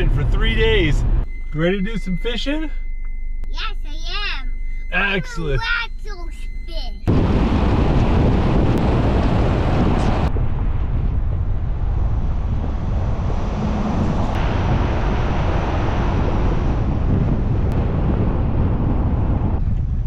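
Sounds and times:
boat engine rumble: 7.0s - 20.0s
water noise: 7.1s - 19.7s
wind buffeting microphone: 7.1s - 20.0s.

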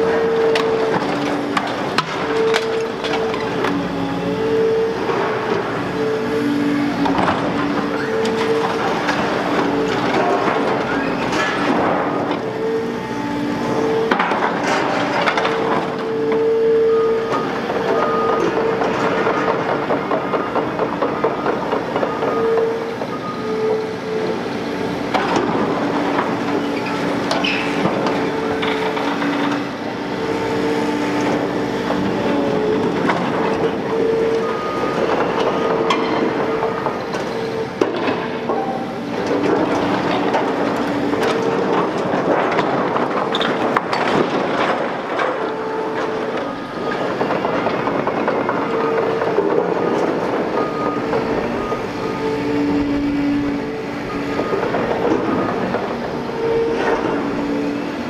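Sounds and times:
excavator engine and hydraulics: 0.0s - 58.0s
debris clattering and crashing: 37.8s - 51.8s
hydraulic whine: 45.0s - 58.0s.

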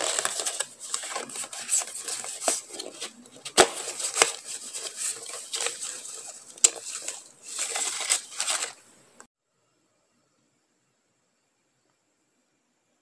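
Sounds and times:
paper cards rustling and flicking: 0.0s - 8.8s.

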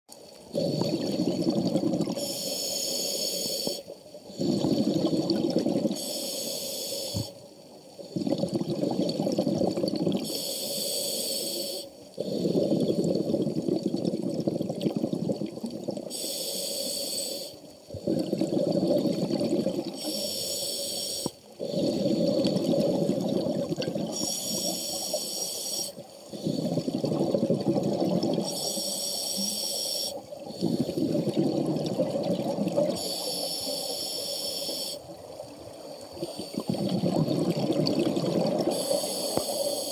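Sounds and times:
exhaled bubbles rumbling: 0.6s - 2.2s, 4.4s - 6.0s, 8.0s - 10.3s, 12.3s - 16.1s, 17.9s - 20.0s, 21.6s - 24.6s, 26.4s - 28.6s, 30.4s - 33.0s, 35.1s - 38.9s
regulator inhalation hiss: 2.2s - 4.8s, 5.9s - 7.5s, 10.2s - 13.2s, 16.1s - 17.7s, 20.0s - 22.7s, 24.1s - 26.9s, 28.4s - 31.3s, 33.0s - 35.1s, 38.7s - 39.9s.

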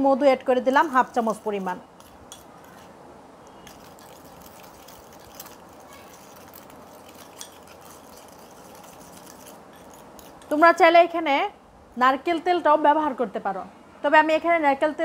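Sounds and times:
spoon stirring thick paste: 0.6s - 10.8s
spoon clicking against glass: 3.5s - 10.6s.

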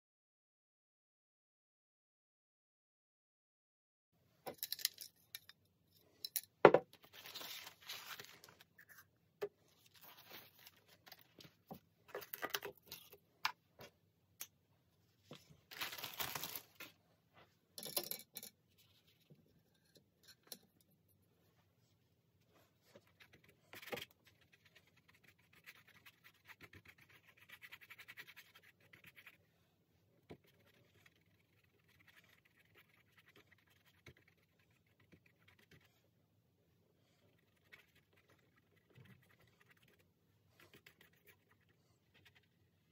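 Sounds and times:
brush strokes scrubbing paper: 9.6s - 11.4s, 21.7s - 29.7s, 30.3s - 36.2s, 36.8s - 42.9s
scratching and scraping on paper: 22.6s - 29.5s, 30.3s - 36.0s, 37.1s - 42.8s.

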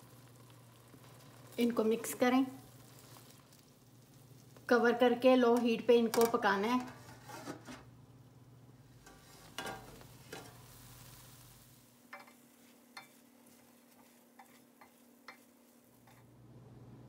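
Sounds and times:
spoon stirring noodles in pot: 12.1s - 16.4s.

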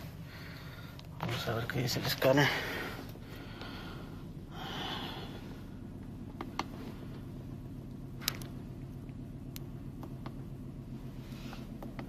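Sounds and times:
car engine idling with misfire: 0.0s - 12.0s
breathy hiss: 2.4s - 5.8s.

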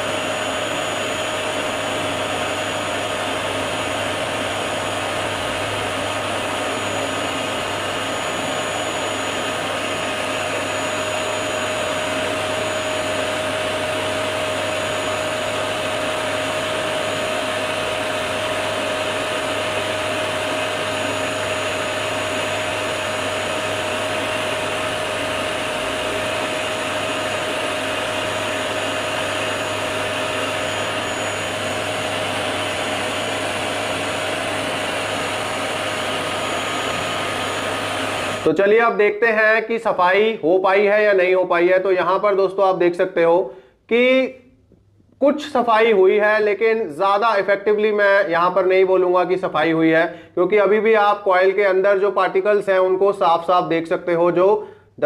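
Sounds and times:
vacuum cleaner running: 0.0s - 42.7s.

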